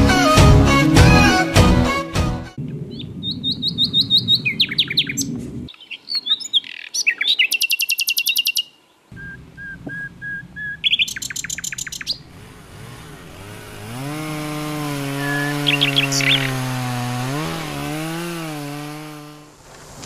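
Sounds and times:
nightingale singing: 2.9 - 12.3, 15.1 - 16.8.

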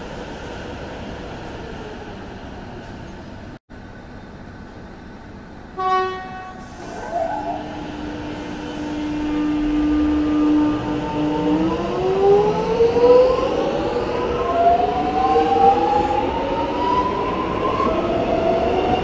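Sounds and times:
train horn toot: 5.8 - 6.9, 7.5 - 11.4.

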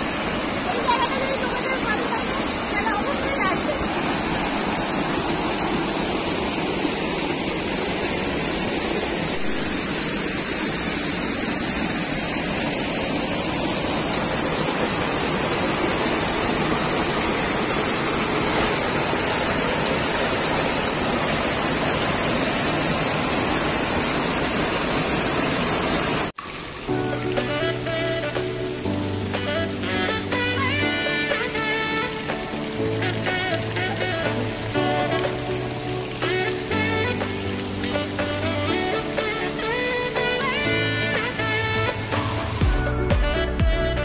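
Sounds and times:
waterfall splashing onto rocks: 0.0 - 44.0.

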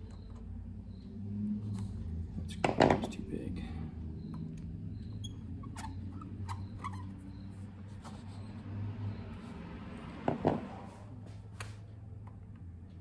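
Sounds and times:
screwdriver clicks and squeaks: 0.0 - 0.5, 4.3 - 7.5.

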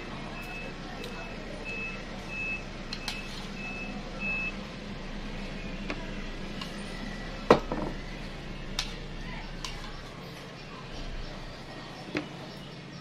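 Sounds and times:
vehicle reversing alarm beeping: 0.0 - 13.0.

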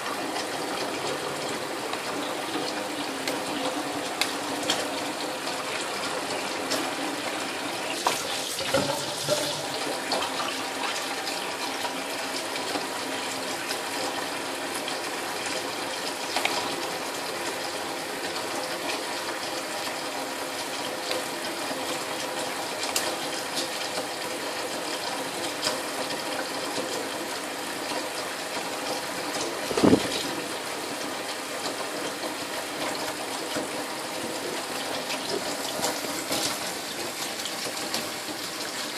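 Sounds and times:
tap running into steel sink: 8.0 - 10.4, 29.4 - 30.4.

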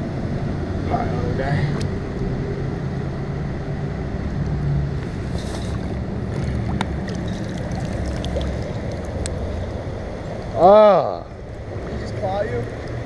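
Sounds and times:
low rumble on microphone: 0.0 - 10.6
water splashing around wading feet: 5.0 - 10.6.

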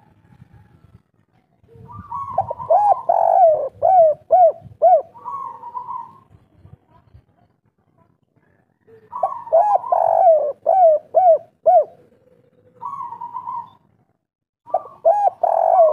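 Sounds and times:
dove cooing: 1.7 - 6.4, 8.8 - 13.8, 14.7 - 15.9.

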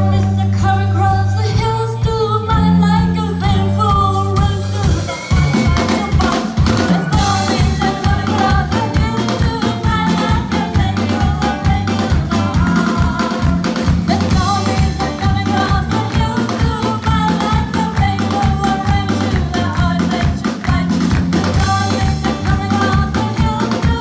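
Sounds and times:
electric guitars: 0.0 - 24.0
women singing: 0.0 - 24.0
steady drum beat: 3.9 - 24.0.

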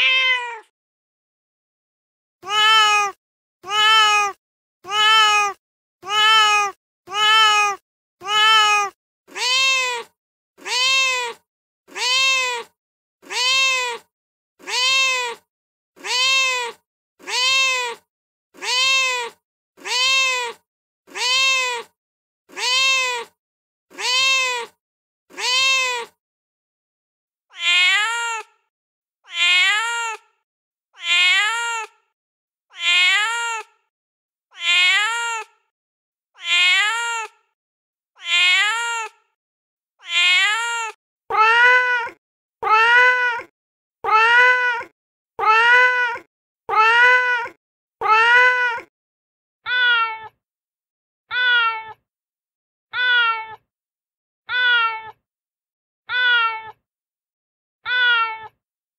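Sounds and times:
recorded cat meows: 0.0 - 0.7, 2.4 - 26.2, 27.5 - 30.4, 31.0 - 32.1, 32.7 - 33.9, 34.5 - 35.7, 36.4 - 37.6, 38.2 - 39.4, 40.0 - 48.9, 49.6 - 50.4, 51.3 - 52.0, 52.9 - 53.7, 54.5 - 55.2, 56.1 - 56.8, 57.8 - 58.6.

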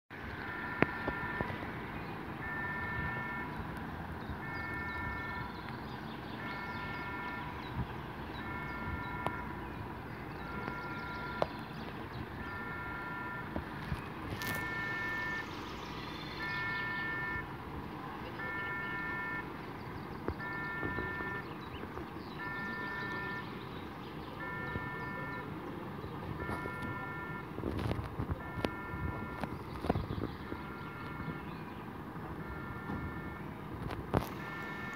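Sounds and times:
electronic warning beeps: 0.3 - 5.6, 6.4 - 11.8, 12.4 - 17.6, 18.4 - 19.6, 20.3 - 21.7, 22.4 - 23.7, 24.3 - 25.6, 26.4 - 27.6, 28.4 - 31.7, 32.4 - 33.6, 34.2 - 34.9.

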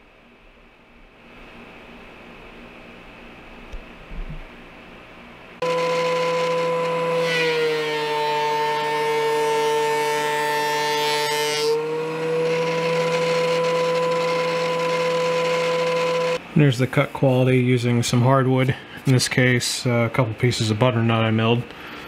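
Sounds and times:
board cutting noise: 5.6 - 16.4
thickness planer whining: 5.6 - 16.4.

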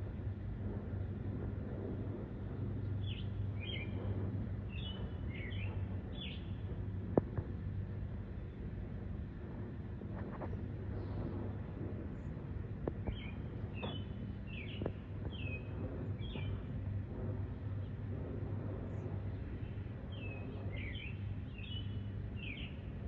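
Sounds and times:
distant jet rumble: 0.0 - 23.0
bird chirping: 13.1 - 16.6, 20.1 - 22.8.

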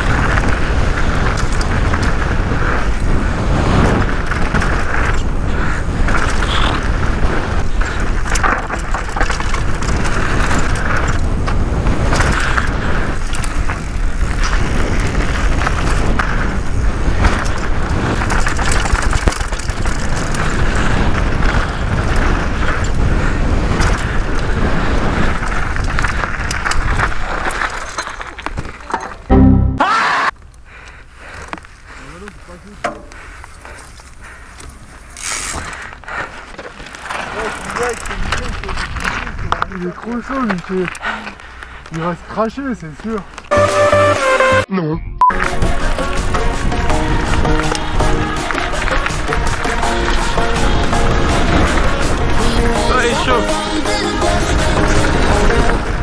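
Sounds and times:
wind rush on microphone: 0.0 - 27.7, 37.4 - 40.4, 45.6 - 56.0
bike rattling over bumps: 0.0 - 29.3, 31.0 - 43.5, 45.4 - 56.0
tyres crunching over stones: 7.6 - 21.3, 31.4 - 43.5.

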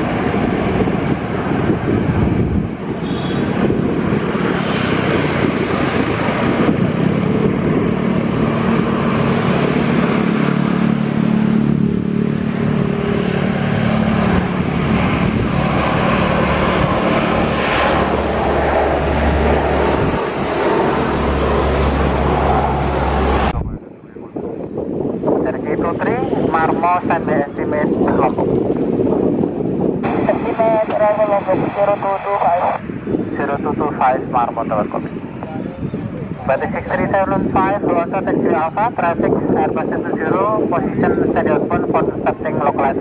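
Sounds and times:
propeller aircraft engines droning: 0.0 - 43.0.

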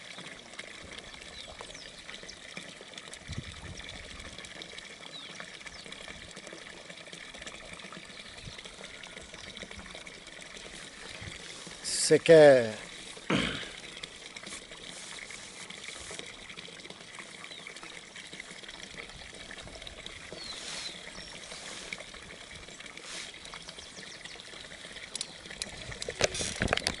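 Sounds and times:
water trickling: 0.0 - 27.0
hand handling camera: 25.9 - 27.0.

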